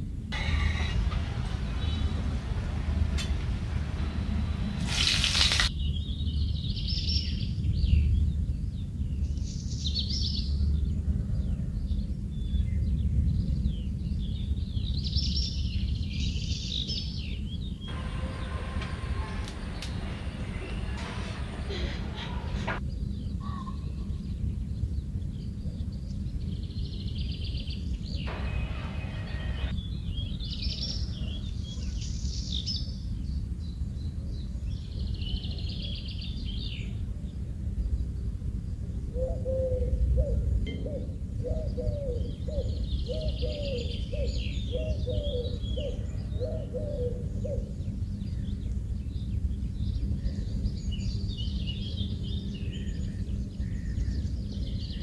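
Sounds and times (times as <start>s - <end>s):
low background rumble: 0.0s - 16.2s, 17.2s - 32.4s
birds chirping: 0.4s - 8.0s, 14.4s - 22.8s, 26.9s - 37.0s.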